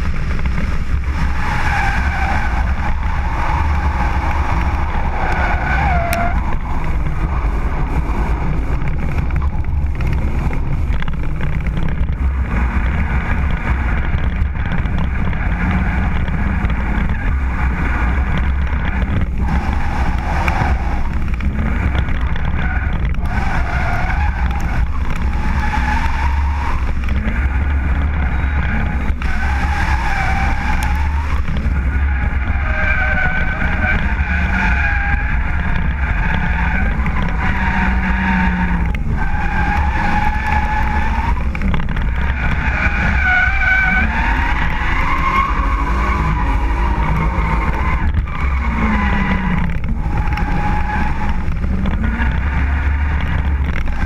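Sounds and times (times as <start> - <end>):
car engine revving: 0.0 - 54.0
heavy low rumble: 0.0 - 54.0
tyres squealing: 0.5 - 9.6.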